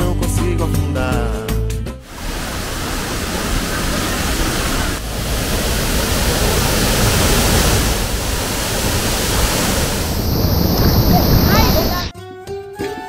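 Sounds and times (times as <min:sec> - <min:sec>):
waterfall and stream rushing: 0:02.0 - 0:12.1.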